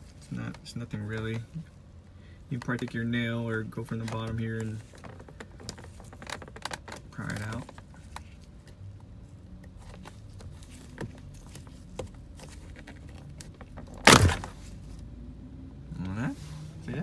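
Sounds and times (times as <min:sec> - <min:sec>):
loud plastic snap: 0:13.9 - 0:14.6.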